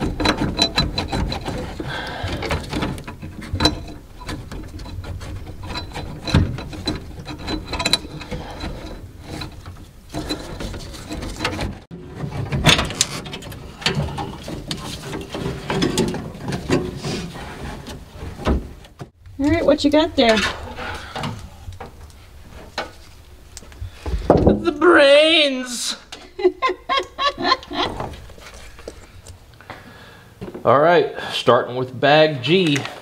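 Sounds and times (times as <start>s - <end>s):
wiring harness clicks and rattles: 0.0s - 24.6s.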